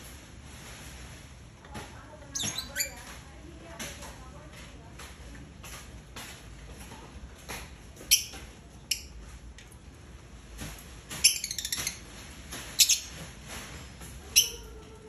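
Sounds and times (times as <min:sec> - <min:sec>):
lovebirds chirping: 0:02.3 - 0:03.2, 0:08.0 - 0:09.2, 0:11.1 - 0:13.2, 0:14.2 - 0:15.0.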